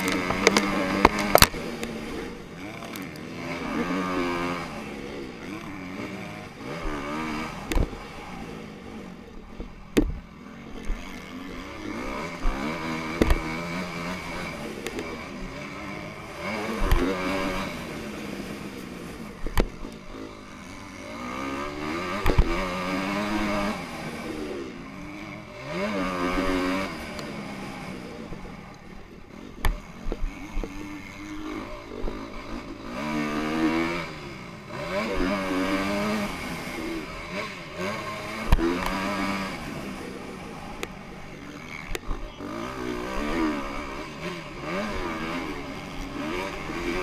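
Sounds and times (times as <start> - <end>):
dirt bike engine revving: 0.0 - 47.0.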